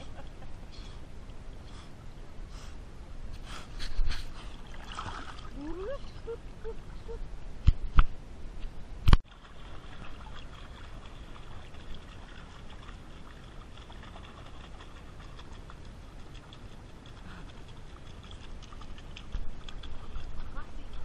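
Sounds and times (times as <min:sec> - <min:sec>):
pool water splashing and lapping: 0:03.4 - 0:07.3, 0:09.1 - 0:21.0.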